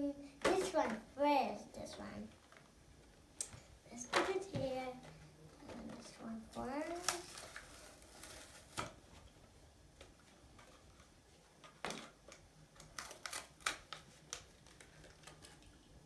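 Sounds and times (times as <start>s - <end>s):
plastic packaging crackling and clicking: 5.0s - 9.0s, 9.9s - 16.0s.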